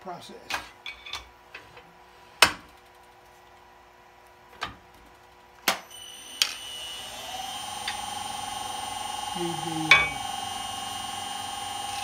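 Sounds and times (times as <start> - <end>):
lathe drive whine: 5.9 - 12.0.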